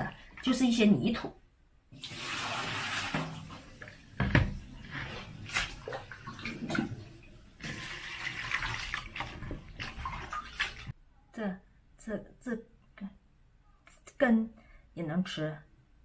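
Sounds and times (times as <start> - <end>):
water splashing in a plastic basin: 2.0 - 11.0.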